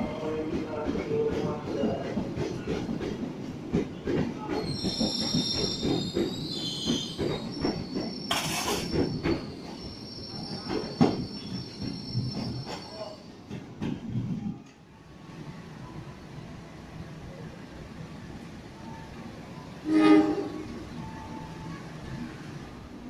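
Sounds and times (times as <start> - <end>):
high wheel squeal: 4.7 - 13.2.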